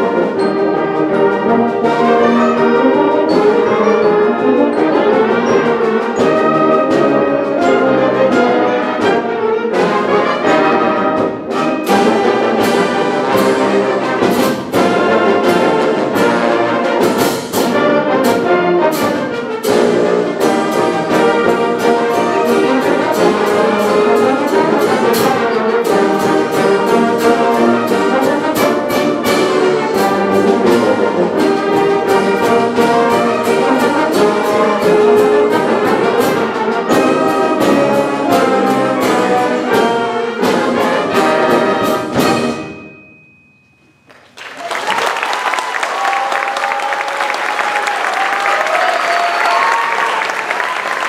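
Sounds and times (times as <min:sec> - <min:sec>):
wind band playing a march: 0:00.0 - 0:43.0
audience applause: 0:44.1 - 0:51.0.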